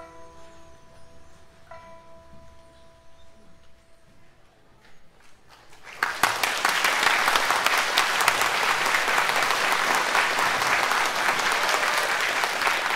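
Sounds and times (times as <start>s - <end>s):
audience applauding: 5.5s - 12.9s.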